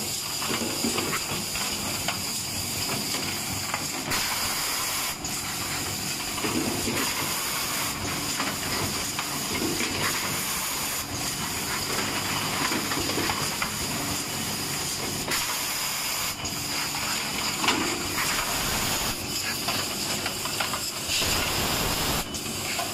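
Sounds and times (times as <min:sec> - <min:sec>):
machine clicks and clacks: 0:00.3 - 0:14.2, 0:17.4 - 0:22.9
compressed air hiss: 0:04.1 - 0:05.9, 0:13.8 - 0:20.1, 0:20.9 - 0:22.9.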